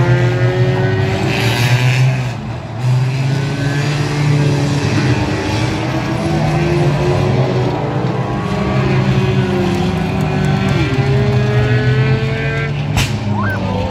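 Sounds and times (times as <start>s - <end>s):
race car engines: 0.0s - 13.9s.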